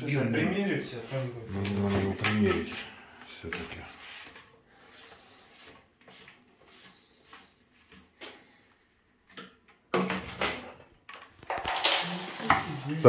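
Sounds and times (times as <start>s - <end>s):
plastic pipe clicks and rustles: 9.2s - 11.8s.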